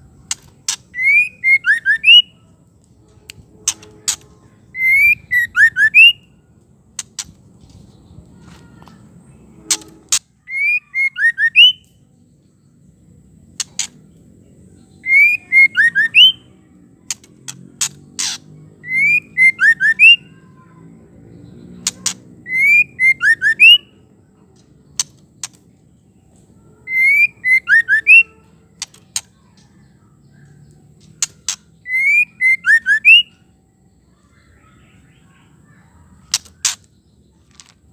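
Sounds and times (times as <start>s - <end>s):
bird calling with clicks and whistles: 0.3s - 2.4s, 3.3s - 6.3s, 9.6s - 12.0s, 15.0s - 20.3s, 21.8s - 23.9s, 26.8s - 37.8s.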